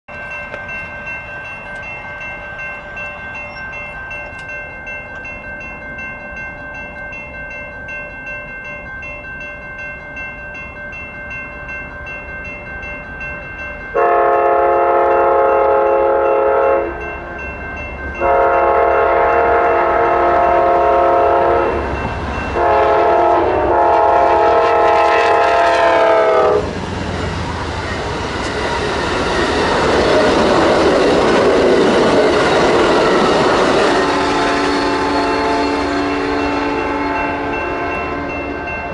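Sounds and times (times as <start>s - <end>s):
crossing warning bell ringing: 0.1s - 38.9s
train rumbling past: 11.0s - 38.9s
train air horn blasts: 14.0s - 17.0s, 18.2s - 21.8s, 22.6s - 26.7s
wheels clattering on rails: 24.1s - 38.9s.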